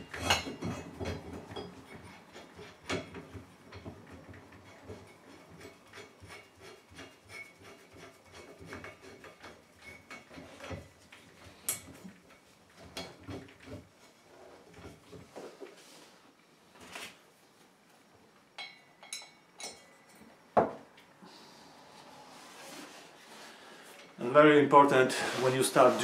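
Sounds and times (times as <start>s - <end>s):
light rubbing: 25.1s - 26.0s.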